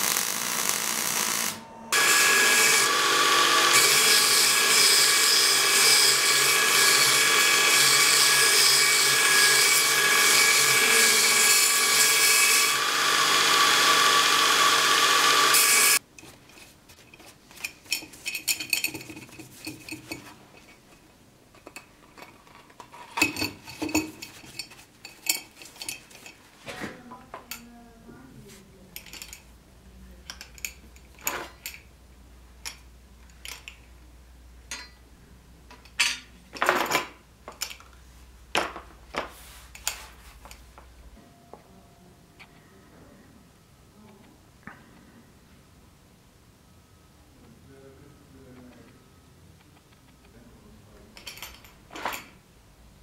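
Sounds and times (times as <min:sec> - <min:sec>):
arc welding crackle: 0:00.0 - 0:01.8
belt grinder whining: 0:00.0 - 0:16.0.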